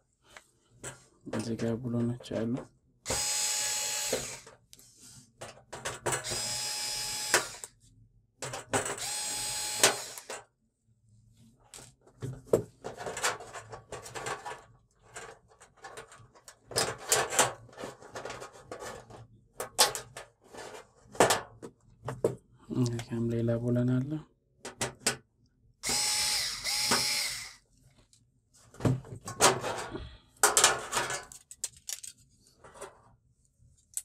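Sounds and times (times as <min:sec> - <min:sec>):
electric screwdriver whirring: 0:03.1 - 0:04.5, 0:06.2 - 0:07.7, 0:09.0 - 0:10.4, 0:25.8 - 0:27.6.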